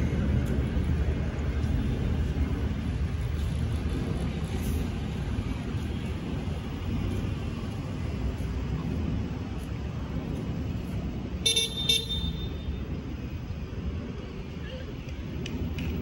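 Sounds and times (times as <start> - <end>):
traffic rumble: 0.0 - 16.0
vehicle horn toots: 11.4 - 12.8.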